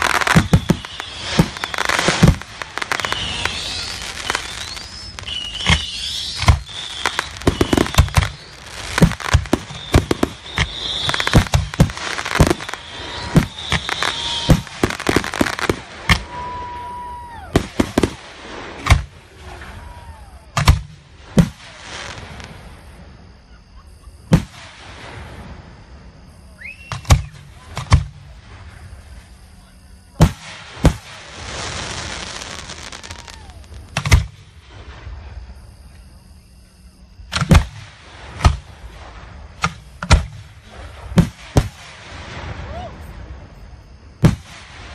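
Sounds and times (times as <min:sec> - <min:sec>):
firework crackling: 0:00.0 - 0:22.9, 0:30.2 - 0:35.2
falling firework whistle: 0:00.0 - 0:44.9.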